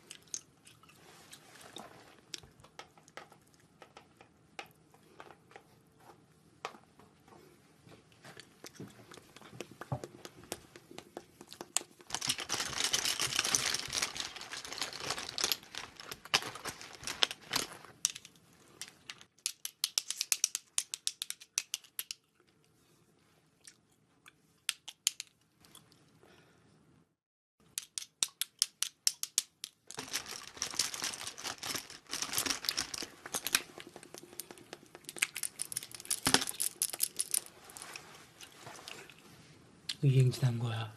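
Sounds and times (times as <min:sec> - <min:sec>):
crinkling and tearing: 0:11.7 - 0:18.3, 0:29.8 - 0:39.2.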